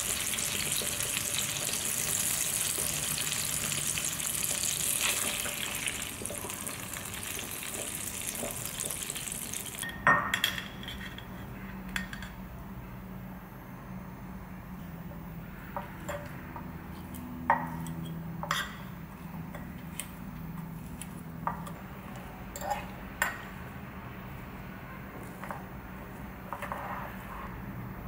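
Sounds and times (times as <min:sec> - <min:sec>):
fork scraping ceramic bowl: 0:26.5 - 0:27.6.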